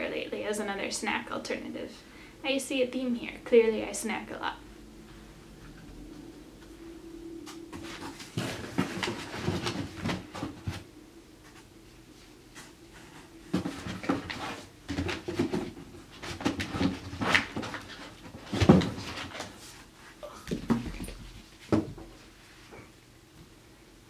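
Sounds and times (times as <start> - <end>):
rummaging in cardboard box: 7.7 - 10.8.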